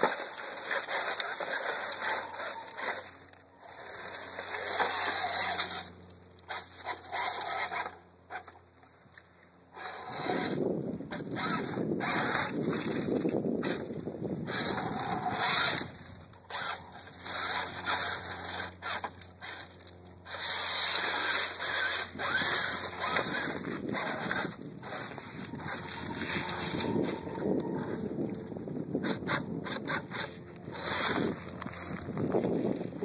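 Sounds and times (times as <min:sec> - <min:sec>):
dry leaves crunching: 0:00.0 - 0:07.6, 0:12.0 - 0:28.6
tires scraping on rock: 0:00.0 - 0:08.6, 0:09.7 - 0:33.0
toy car motor running: 0:00.0 - 0:08.6, 0:09.7 - 0:33.0.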